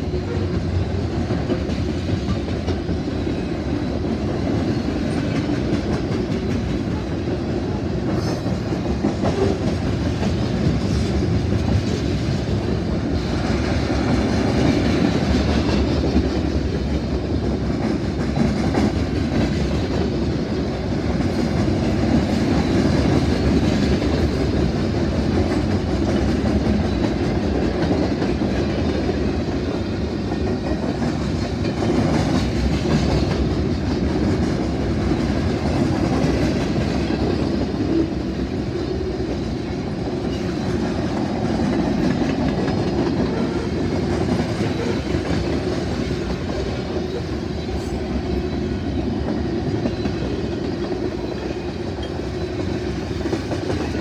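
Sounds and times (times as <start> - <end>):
freight train wheels rumbling on rails: 0.0 - 54.0.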